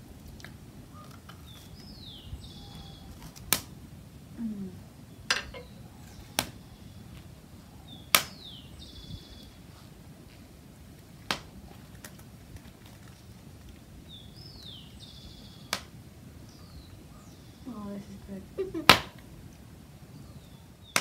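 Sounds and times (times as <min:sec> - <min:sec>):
fire popping: 0:00.0 - 0:20.1, 0:20.8 - 0:21.0
wood fire crackling: 0:00.0 - 0:21.0
bird calling: 0:00.9 - 0:03.6, 0:04.4 - 0:09.8, 0:14.1 - 0:19.2.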